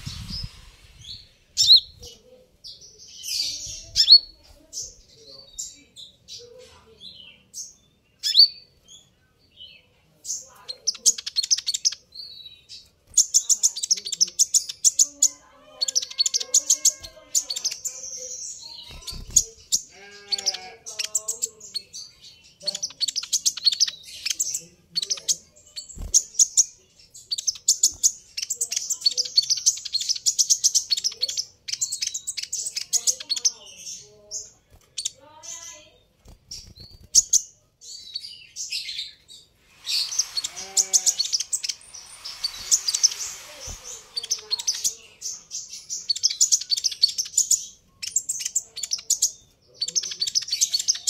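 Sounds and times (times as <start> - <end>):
sunbird chirping and trilling: 0.0 - 51.0.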